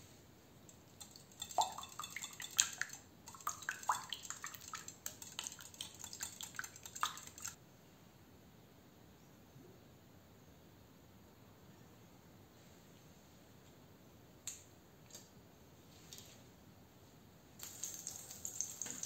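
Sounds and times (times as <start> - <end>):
whisk clinking against glass bowl: 0.7 - 7.6
wet sloshing of egg: 0.9 - 7.6.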